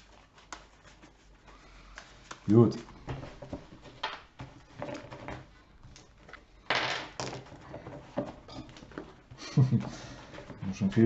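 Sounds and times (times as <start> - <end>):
playing cards knocking and rustling: 1.8 - 11.0.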